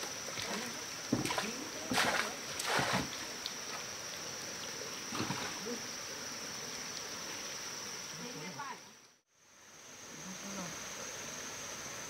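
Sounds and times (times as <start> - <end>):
water splashing: 0.0 - 8.8.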